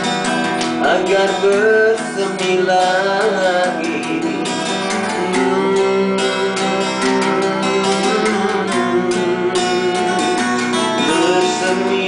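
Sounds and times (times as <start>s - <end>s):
acoustic guitars strumming chords: 0.0s - 12.0s.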